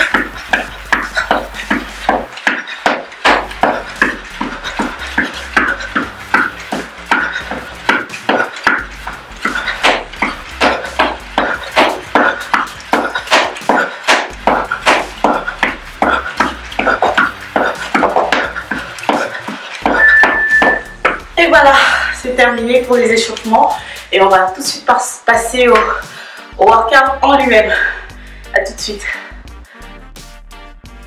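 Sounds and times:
running shoes striking exercise mat: 0.0s - 23.8s, 25.6s - 26.0s.

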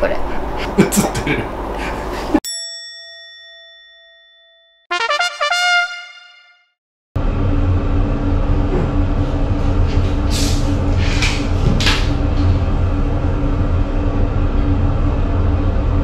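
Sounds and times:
low rumble: 7.2s - 16.0s.

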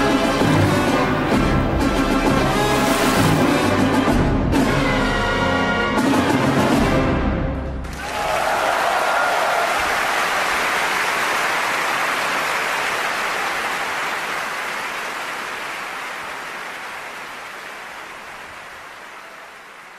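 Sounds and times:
sea surf rushing: 0.8s - 4.0s.

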